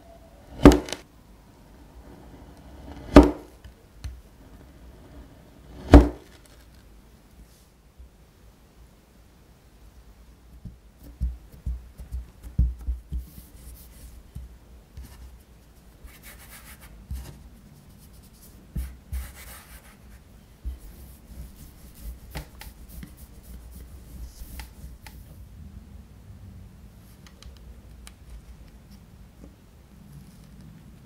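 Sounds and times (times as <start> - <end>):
rolling pin rolling over dough: 1.8 - 6.5, 18.7 - 25.2
dough patted with dull thumps: 10.6 - 13.5
soft rubbing over dough: 10.6 - 25.4.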